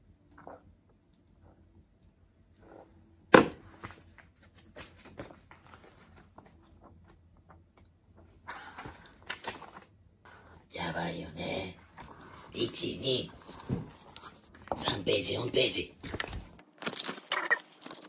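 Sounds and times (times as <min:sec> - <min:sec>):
notebook pages rustling: 0:03.7 - 0:10.6, 0:11.9 - 0:15.4, 0:16.0 - 0:18.0.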